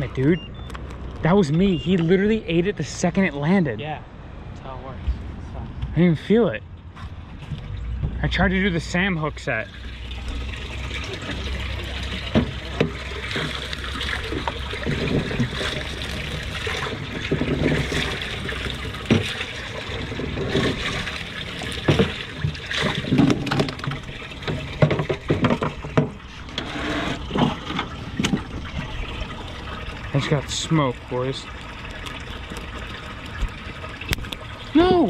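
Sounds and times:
water running and splashing: 8.9s - 35.0s.

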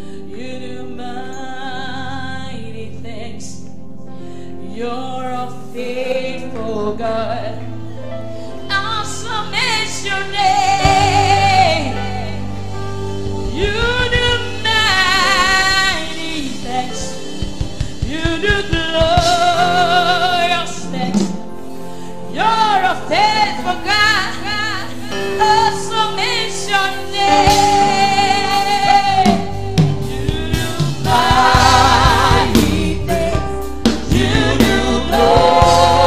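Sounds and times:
sustained keyboard chords: 4.7s - 36.0s
woman singing with vibrato: 8.7s - 12.6s, 13.5s - 17.3s, 18.0s - 21.4s, 22.3s - 33.6s
low drum beats: 13.0s - 19.7s, 29.4s - 36.0s.

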